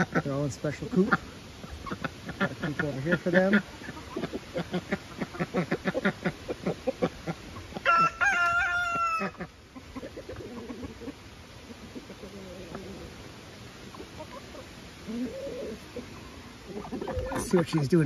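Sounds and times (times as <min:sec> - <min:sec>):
rooster crowing: 0:07.8 - 0:09.5.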